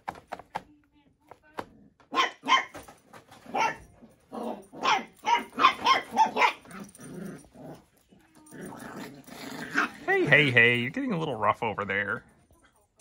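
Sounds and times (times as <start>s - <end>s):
puppies barking: 2.1s - 2.8s, 3.5s - 7.8s.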